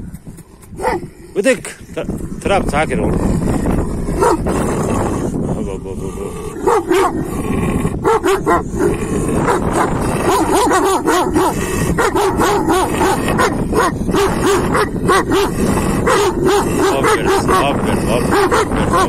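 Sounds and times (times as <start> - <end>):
dogs barking: 0.8 - 1.2, 3.8 - 5.1, 6.5 - 19.0.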